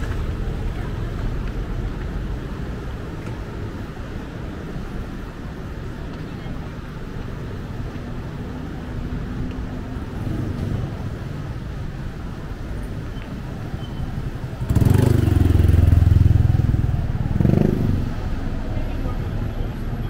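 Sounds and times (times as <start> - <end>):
street traffic rumble: 0.0 - 20.0
vehicle engine passing close: 14.6 - 18.3.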